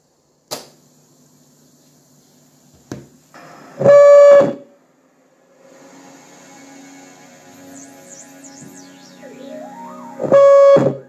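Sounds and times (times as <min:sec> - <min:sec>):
faint hum: 0:00.0 - 0:11.0
loud electronic tone: 0:06.2 - 0:11.0.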